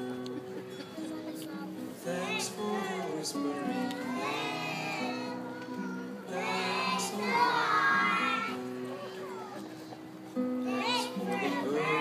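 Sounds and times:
backing music: 0.0s - 12.0s
children singing together: 2.0s - 9.9s, 10.6s - 12.0s.

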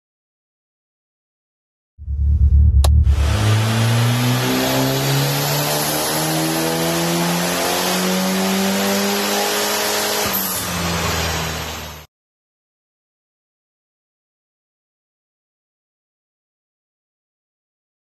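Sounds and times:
car engine at full throttle: 2.1s - 12.1s
sharp click: 2.8s - 3.1s.

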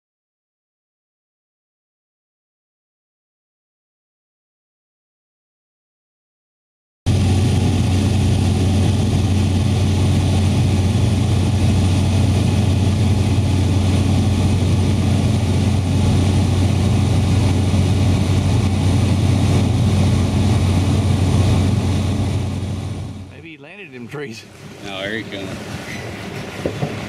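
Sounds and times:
propeller aircraft engine drone: 7.1s - 27.0s.

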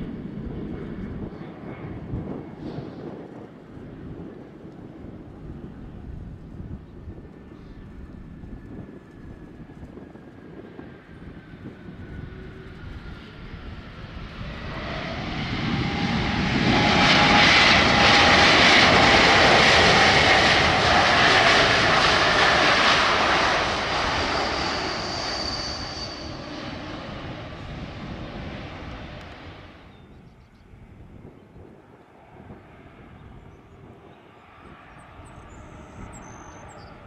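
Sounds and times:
jet engines whining: 9.0s - 29.9s.

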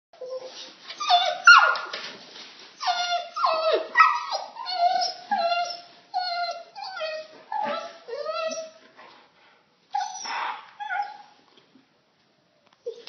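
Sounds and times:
puppy whining and yipping: 0.2s - 1.9s, 2.8s - 8.8s, 9.9s - 11.4s.

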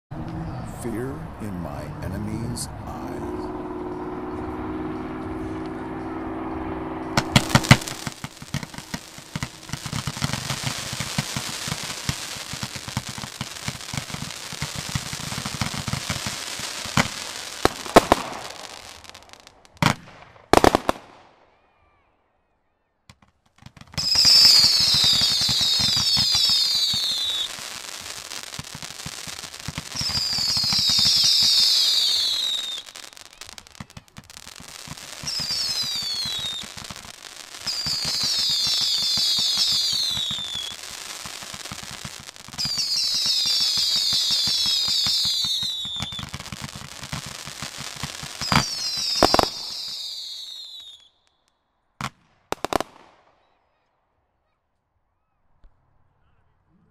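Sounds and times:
whistling firework shots: 7.0s - 22.1s, 23.1s - 53.8s
firework pops and crackle: 7.2s - 21.3s, 23.1s - 51.1s, 52.0s - 53.2s.

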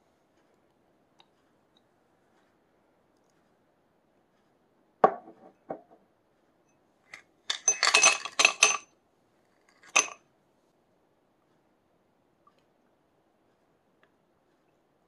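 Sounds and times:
ice cubes clinking in a glass: 7.5s - 8.8s, 9.8s - 10.2s.

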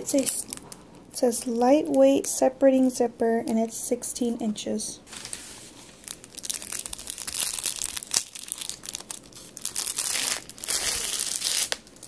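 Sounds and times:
plastic packaging crinkling: 0.0s - 2.2s, 5.1s - 12.0s.

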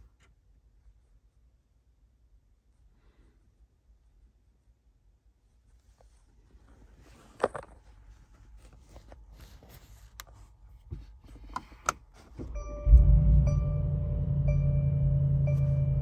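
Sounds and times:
car engine starting and idling: 11.5s - 16.0s.

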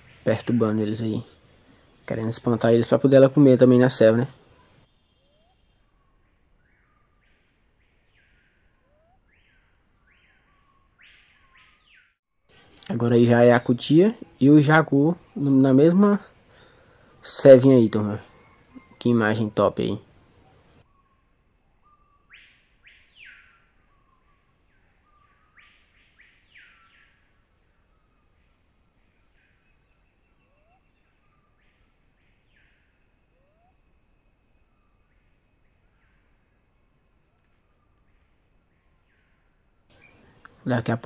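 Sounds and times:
bird whistled calls: 21.8s - 27.2s.

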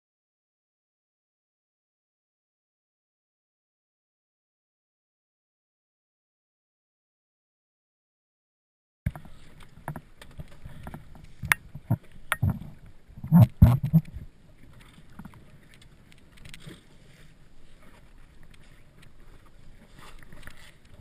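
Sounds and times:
wind and water rumble: 9.1s - 21.0s.

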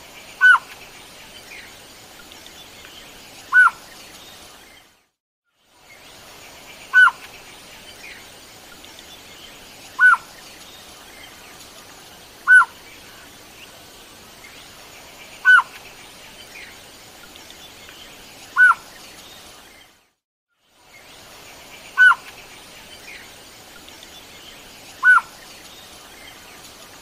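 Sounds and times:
faint steady hiss: 0.0s - 27.0s
bird calling: 0.4s - 0.8s, 3.5s - 3.8s, 6.9s - 7.3s, 10.0s - 10.3s, 12.4s - 12.8s, 15.4s - 15.8s, 18.6s - 19.0s, 22.0s - 22.4s, 25.0s - 25.4s.

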